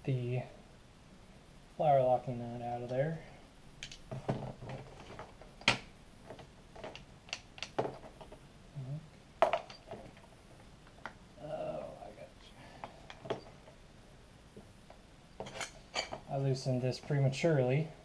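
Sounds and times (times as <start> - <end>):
metal tools clinking: 9.4 - 10.2, 15.4 - 16.2.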